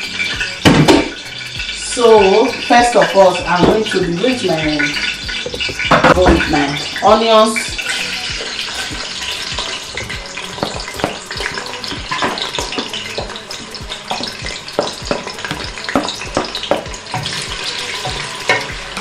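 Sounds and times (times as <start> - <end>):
onions sizzling in hot oil: 0.0 - 19.0
spoon knocking on plate and pot: 14.8 - 17.4.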